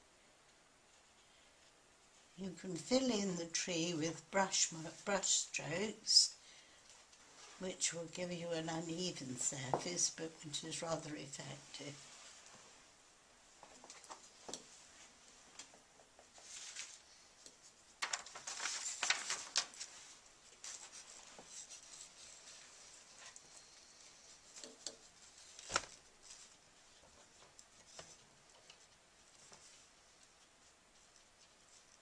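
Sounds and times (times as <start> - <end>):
paper sheet rustling: 16.4 - 23.4, 24.6 - 26.6.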